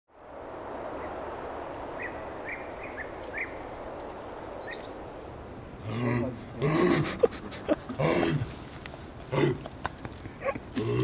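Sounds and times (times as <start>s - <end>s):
outdoor background noise: 0.1s - 11.0s
birds chirping: 1.9s - 11.0s.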